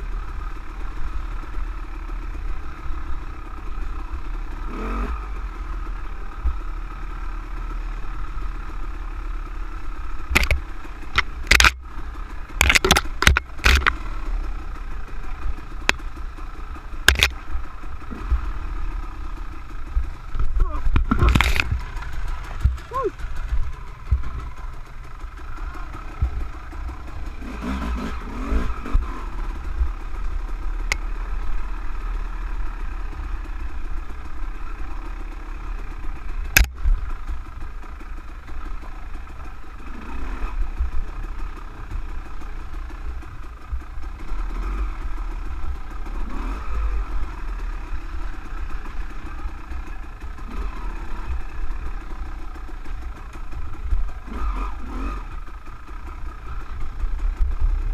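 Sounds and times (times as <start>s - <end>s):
dirt bike engine: 0.0s - 57.9s
low rumble on microphone: 19.9s - 24.9s.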